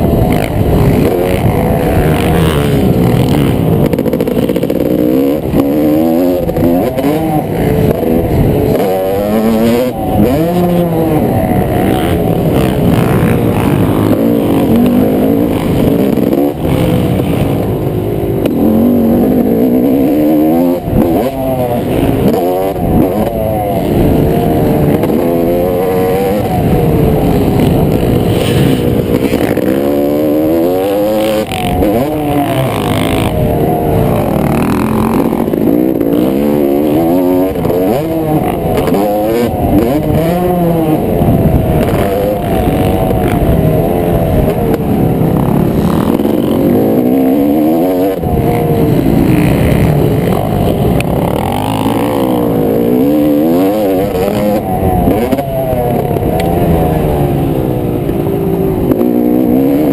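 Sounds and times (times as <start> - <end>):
motocross engine revving: 0.0 - 59.9.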